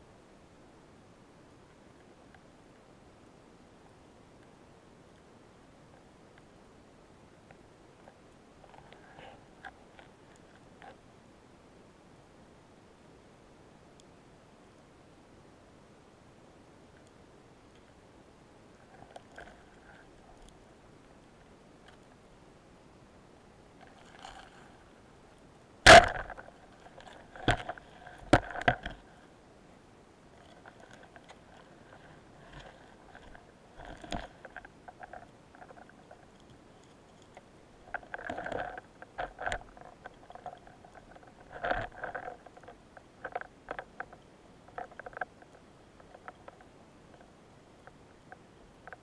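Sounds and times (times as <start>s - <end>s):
underwater speargun shot: 25.8s - 26.3s.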